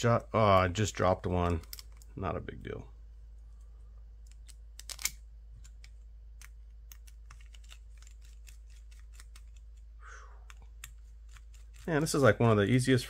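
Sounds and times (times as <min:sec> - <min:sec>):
small parts clicking and tapping: 0:00.4 - 0:02.2, 0:04.2 - 0:12.0.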